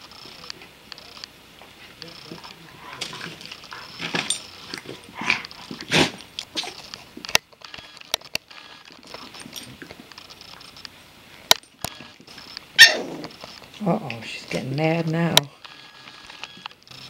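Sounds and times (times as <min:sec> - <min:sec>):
dogs growling: 0:01.8 - 0:06.9, 0:12.8 - 0:13.5.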